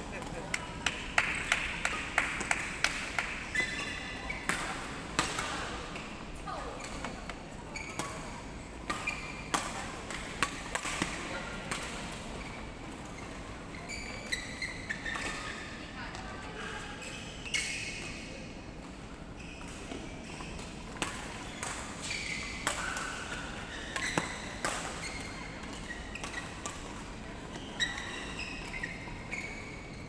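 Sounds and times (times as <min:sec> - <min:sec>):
rackets striking shuttlecocks: 0:00.2 - 0:06.1
shoes squeaking on court mat: 0:03.4 - 0:05.0, 0:12.4 - 0:15.7, 0:21.4 - 0:30.0.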